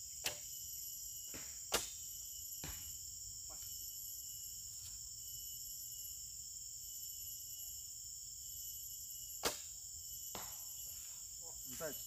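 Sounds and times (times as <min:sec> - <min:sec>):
insect chorus: 0:00.0 - 0:12.0
bowstring snap: 0:01.7 - 0:02.0.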